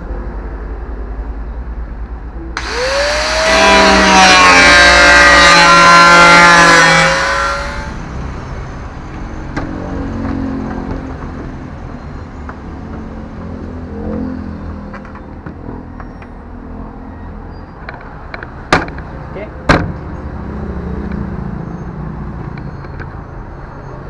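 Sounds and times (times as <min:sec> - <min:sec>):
angle grinder whining: 0:02.6 - 0:08.2.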